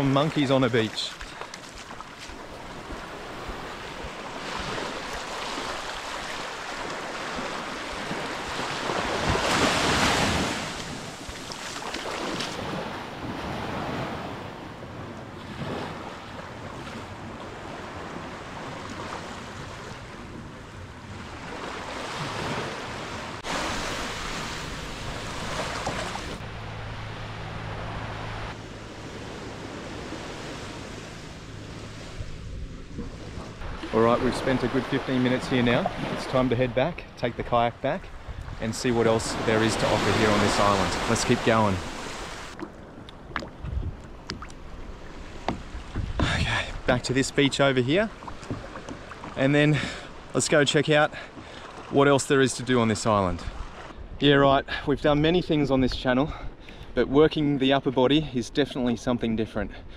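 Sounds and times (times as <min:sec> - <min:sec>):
sea waves washing on shore: 0:00.0 - 0:53.9
low engine hum: 0:24.2 - 0:33.9
wind buffeting microphone: 0:38.0 - 0:39.4, 0:42.2 - 0:46.9.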